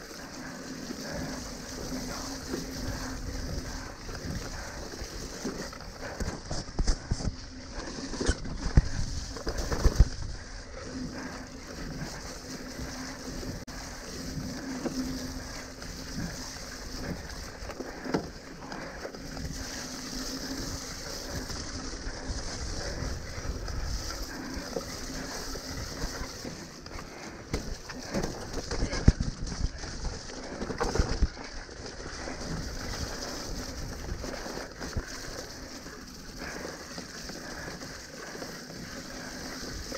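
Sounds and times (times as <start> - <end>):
bike rattling on dirt trail: 0.0 - 39.9
wind noise on microphone: 27.5 - 31.5.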